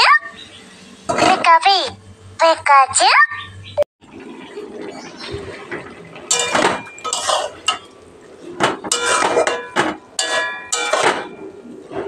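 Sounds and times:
metal spatula scraping a wok: 0:07.1 - 0:07.6, 0:08.9 - 0:11.3.

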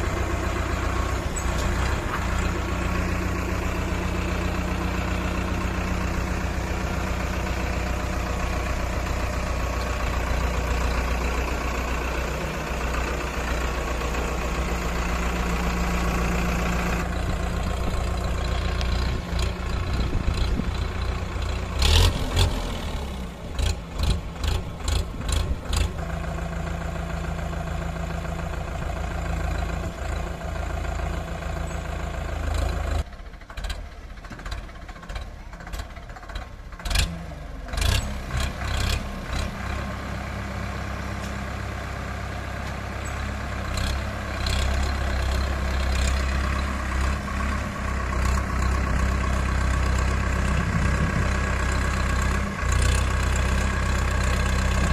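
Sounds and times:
tractor diesel engine running: 0:00.0 - 0:54.9.

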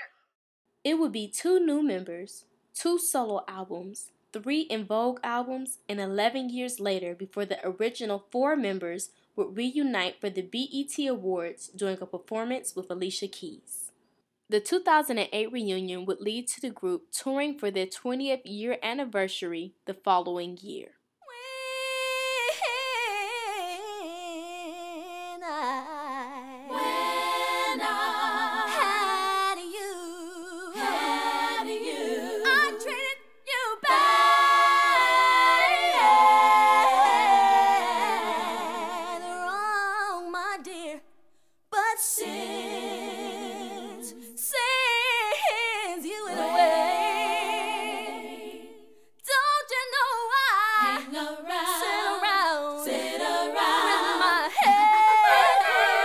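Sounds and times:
women singing a cappella: 0:21.3 - 0:41.1, 0:41.7 - 0:56.0.

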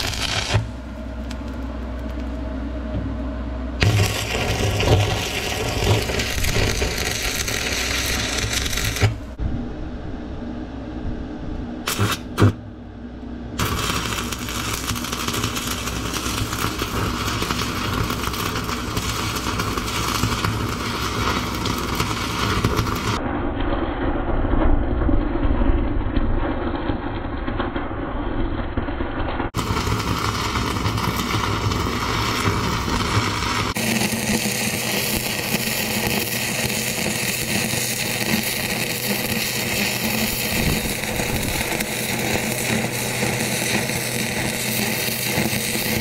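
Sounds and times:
arc welder crackling and hissing: 0:00.0 - 0:02.6, 0:03.8 - 0:09.4, 0:11.8 - 0:12.7, 0:13.6 - 0:23.2, 0:29.5 - 0:46.0
steady low hum: 0:00.0 - 0:46.0.

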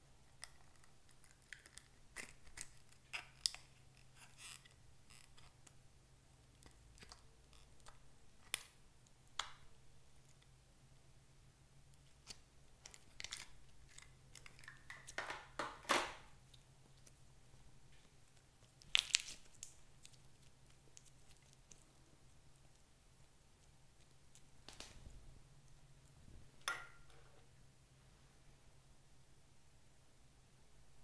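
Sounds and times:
slime crackling: 0:16.4 - 0:25.0.

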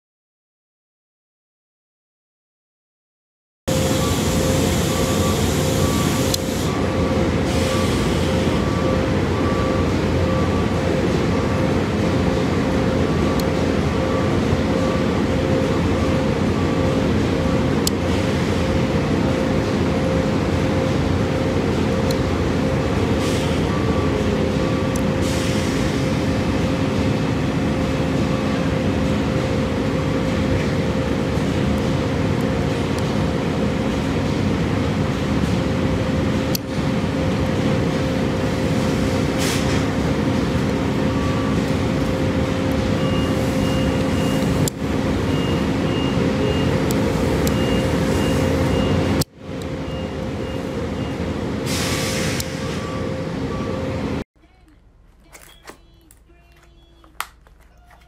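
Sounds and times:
machinery drone: 0:03.7 - 0:54.2
short high beeps: 0:55.3 - 0:56.1.

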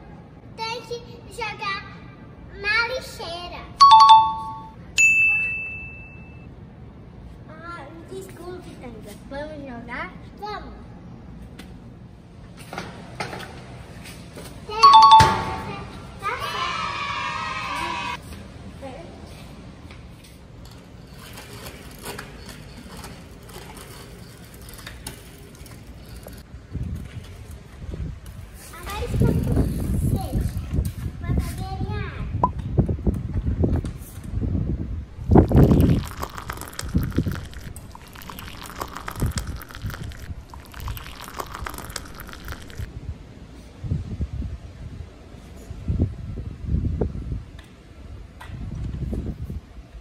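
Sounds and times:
bicycle tyres rumbling on concrete: 0:20.6 - 0:31.2, 0:35.2 - 0:42.9
water gurgling in plastic bottle: 0:35.4 - 0:42.9.

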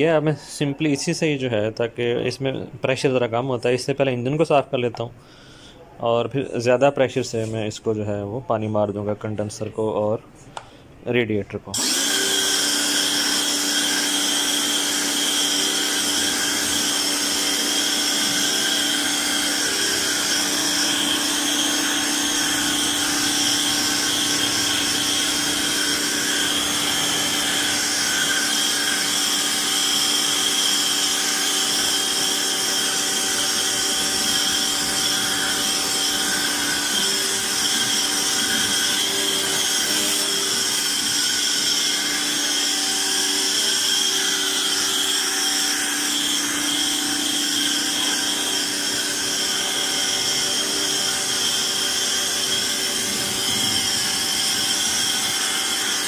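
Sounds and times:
pressure washer running: 0:11.8 - 0:56.0.

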